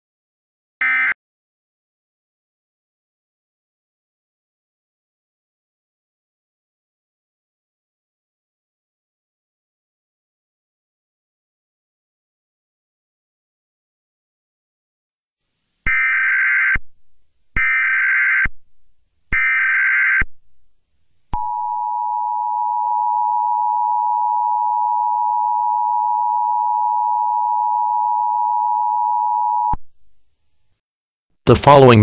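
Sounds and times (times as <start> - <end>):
two-tone attention signal: 0.8 - 1.2.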